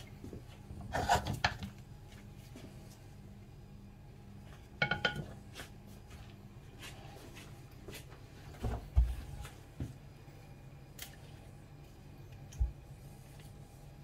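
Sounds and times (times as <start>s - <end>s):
steady low hum: 0.0s - 14.0s
kitchenware clinking: 4.8s - 5.4s.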